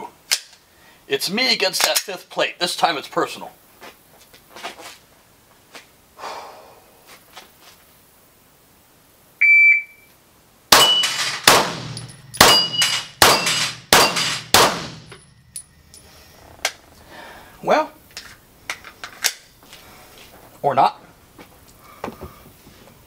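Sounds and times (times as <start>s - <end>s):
shot timer beep: 9.4s - 10.1s, 10.8s - 11.2s, 12.0s - 14.2s
pistol shots: 10.7s - 15.2s
steel plates clanging: 10.8s - 16.2s.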